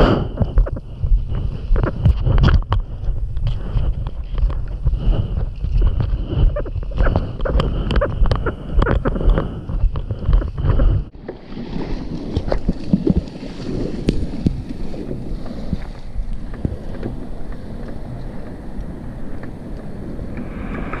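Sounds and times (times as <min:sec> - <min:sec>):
wind buffeting microphone: 0:00.0 - 0:21.0
whitewater washing up beach: 0:11.1 - 0:21.0.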